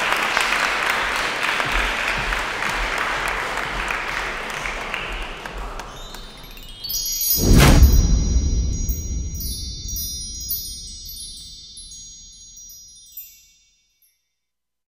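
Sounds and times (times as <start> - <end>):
shimmering chime tones: 5.9 - 14.3
low rumble: 7.4 - 12.4.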